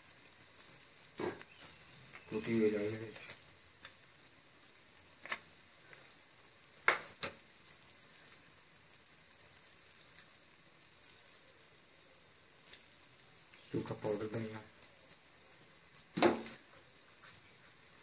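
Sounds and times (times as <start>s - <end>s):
food sizzling in a pan: 0.0s - 18.0s.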